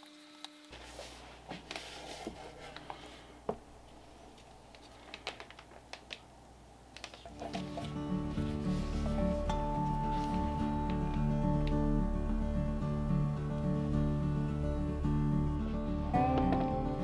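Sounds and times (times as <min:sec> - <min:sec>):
low hum: 0:08.3 - 0:17.0.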